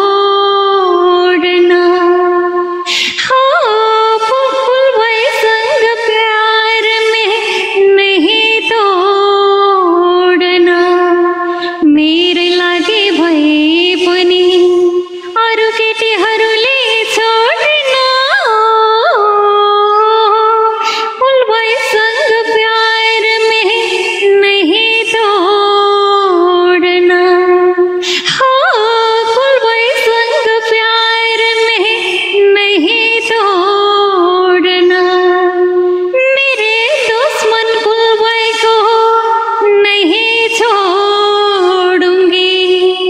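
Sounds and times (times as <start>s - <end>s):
woman singing unaccompanied: 0.0s - 43.0s
singer breathing: 2.7s - 3.3s, 11.4s - 11.8s, 20.8s - 21.2s, 27.9s - 28.4s.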